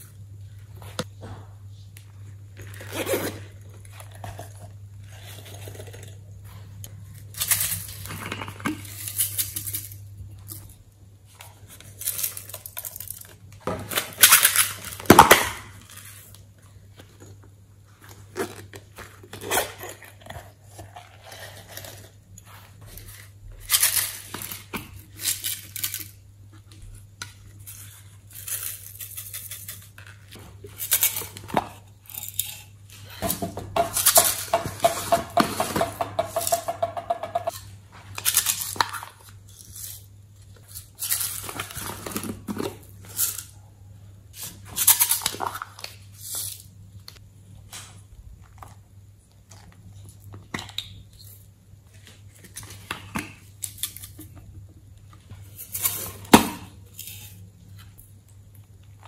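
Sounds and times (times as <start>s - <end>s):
plastic containers rattling: 33.2s - 37.6s.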